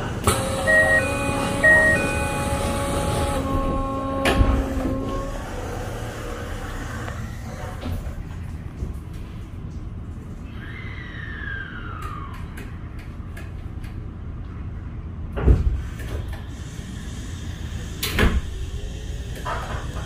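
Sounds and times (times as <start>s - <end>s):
train interior rumble: 0.0s - 10.5s.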